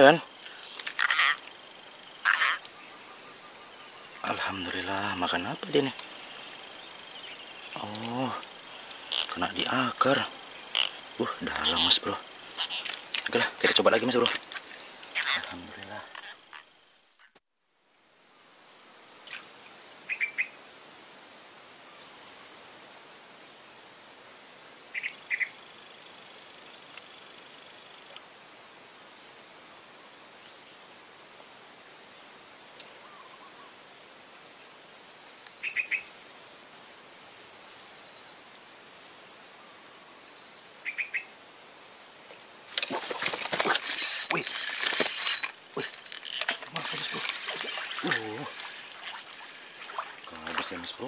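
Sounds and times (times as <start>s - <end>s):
insects droning: 0.0s - 51.0s
bird calls: 35.6s - 36.2s.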